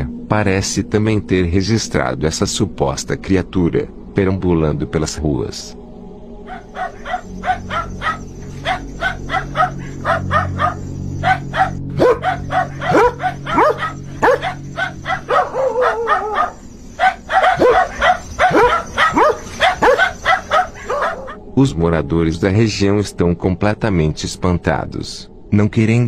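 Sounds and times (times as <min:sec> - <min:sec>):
dog whining: 0:06.5 - 0:21.4
dog yelping: 0:06.5 - 0:21.4
dogs barking rapidly: 0:06.5 - 0:21.4.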